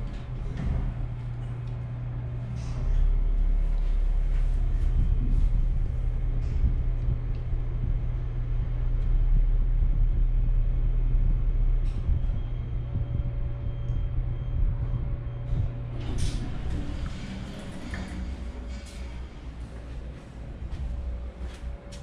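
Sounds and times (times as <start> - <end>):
elevator humming: 0.0 - 22.0
elevator doors sliding open: 15.4 - 21.5.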